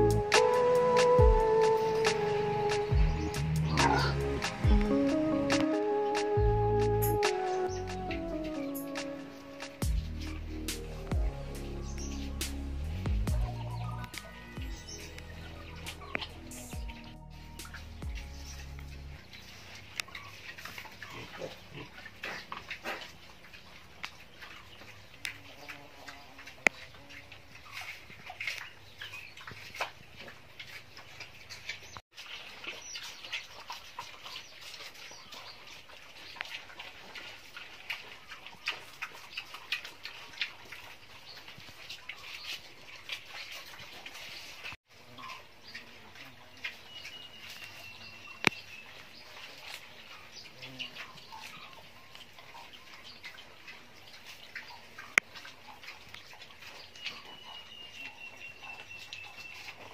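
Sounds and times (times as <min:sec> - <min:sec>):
high steady animal call: 0:00.0 - 0:20.4
piglets clicking and chirping: 0:00.0 - 0:59.9.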